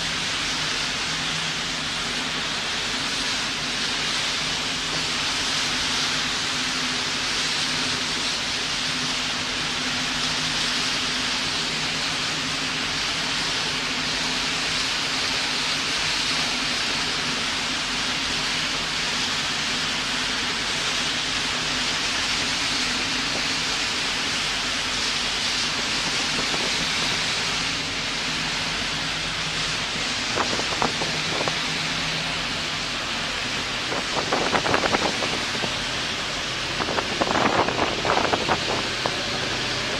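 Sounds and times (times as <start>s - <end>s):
low engine hum: 0.0s - 39.9s
water rushing from boat wake: 0.0s - 39.9s.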